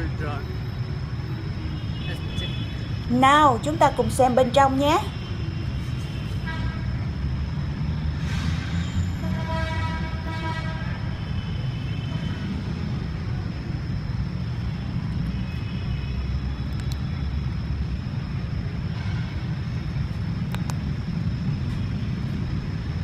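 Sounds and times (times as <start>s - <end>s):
low traffic rumble: 0.0s - 23.0s
faint small clicks: 16.7s - 17.0s, 20.5s - 20.8s.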